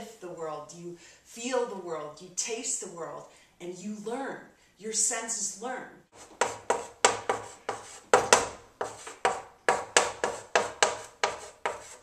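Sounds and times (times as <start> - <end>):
chalk writing on chalkboard: 6.1 - 12.0.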